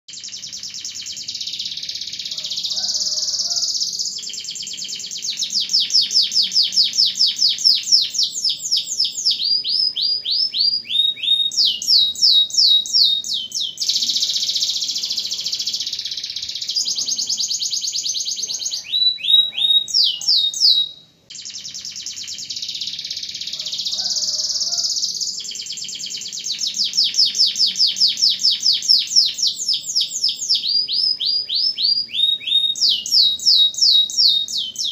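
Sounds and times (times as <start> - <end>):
canary singing trills: 0.1 - 34.9.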